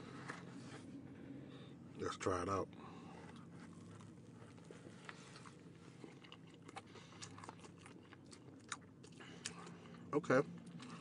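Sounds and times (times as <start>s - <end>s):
low steady hum: 0.0s - 11.0s
chewing sandwich: 3.1s - 11.0s.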